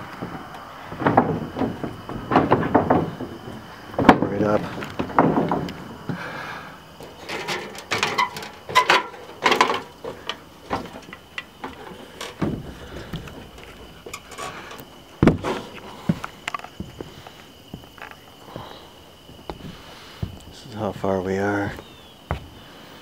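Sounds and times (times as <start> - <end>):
climbing metal ladder: 0.0 - 17.3
footsteps on plywood deck: 0.0 - 23.0
heavy footfall thump: 15.2 - 15.6.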